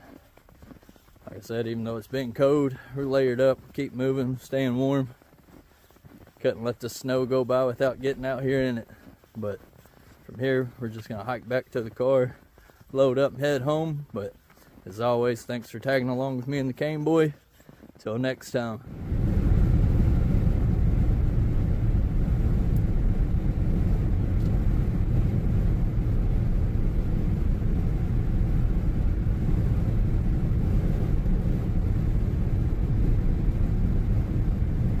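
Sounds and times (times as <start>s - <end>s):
car road and engine rumble: 18.8s - 35.0s.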